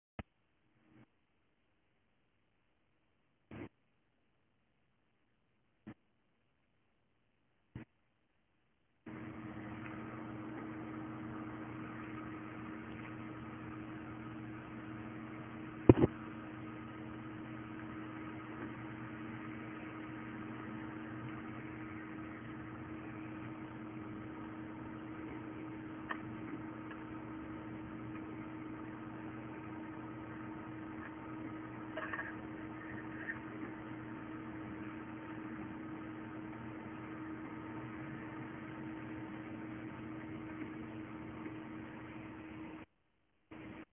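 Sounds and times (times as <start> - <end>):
electrical machine hum: 9.0 - 42.9, 43.5 - 43.9.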